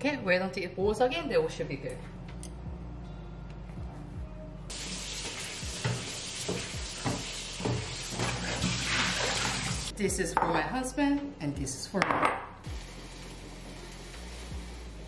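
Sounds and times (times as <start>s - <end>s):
tap running into sink: 5.2s - 9.8s.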